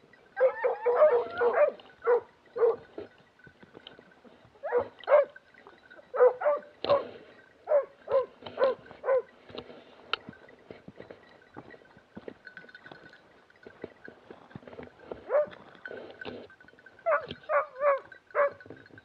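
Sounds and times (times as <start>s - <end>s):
dog barking in high yelps: 0.4s - 2.8s, 4.6s - 5.4s, 6.1s - 7.0s, 7.7s - 9.3s, 15.3s - 15.5s, 17.0s - 18.6s.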